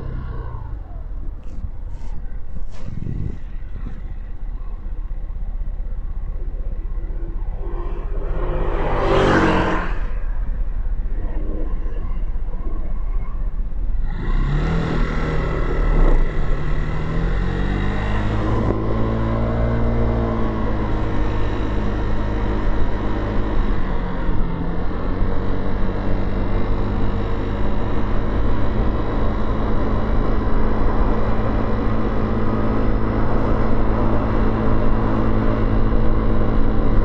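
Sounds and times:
motorcycle engine: 0:00.0 - 0:37.0
traffic rumble: 0:00.0 - 0:37.0
vehicle passing by: 0:06.3 - 0:11.8.

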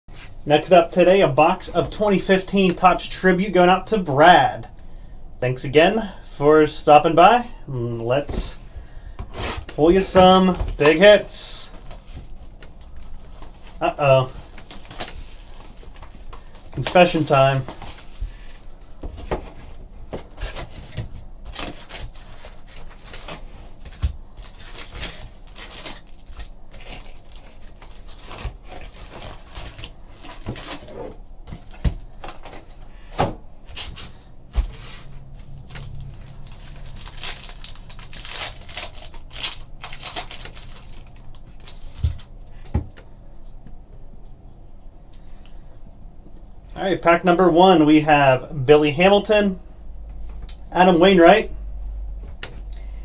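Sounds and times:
cardboard rustling and scraping: 0:08.0 - 0:43.0.

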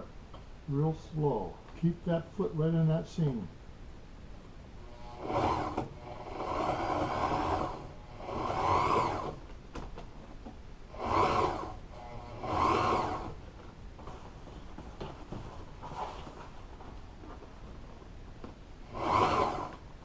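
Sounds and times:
sewing machine stitching: 0:04.9 - 0:09.4, 0:10.9 - 0:13.4, 0:18.8 - 0:19.9.

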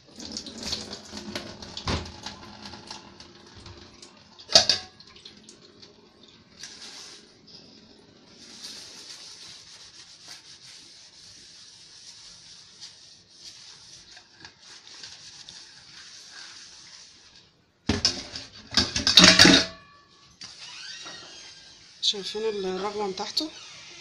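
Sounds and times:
metal pots clattering in sink: 0:03.6 - 0:05.2, 0:17.9 - 0:20.0
sponge scrubbing steel bowl: 0:06.6 - 0:07.4, 0:08.2 - 0:17.6, 0:21.8 - 0:23.5.

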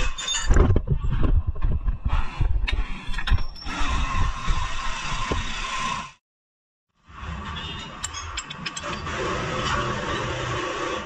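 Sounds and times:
metal tools knocking and clicking: 0:08.0 - 0:09.0.

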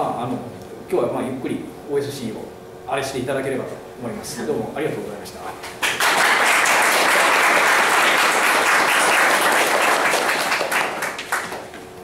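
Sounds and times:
audience applauding: 0:05.8 - 0:11.8.

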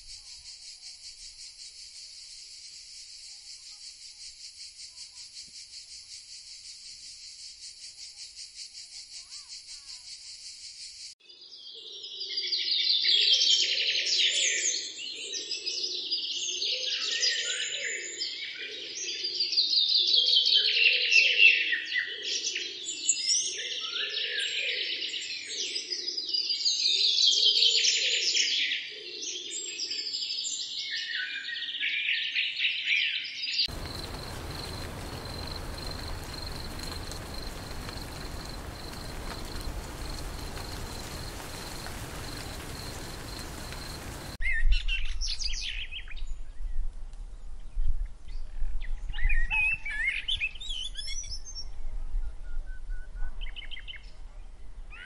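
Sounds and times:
high insect trill: 0:00.0 - 0:11.1, 0:33.7 - 0:44.4
bird song: 0:09.2 - 0:55.0.

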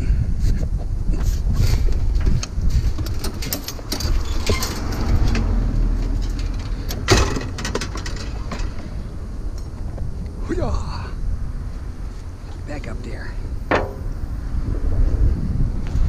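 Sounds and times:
clicks and knocks: 0:02.4 - 0:08.8, 0:13.7 - 0:14.1
low steady rumble: 0:04.1 - 0:16.0.

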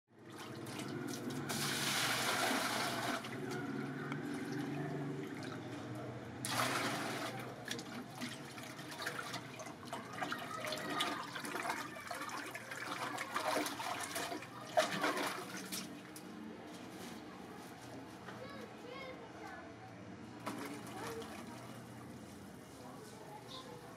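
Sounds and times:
water pouring into bucket: 0:00.2 - 0:03.5, 0:06.4 - 0:15.9, 0:20.4 - 0:22.2
water splashing in bucket: 0:00.2 - 0:03.5, 0:06.4 - 0:16.2, 0:20.4 - 0:22.2.

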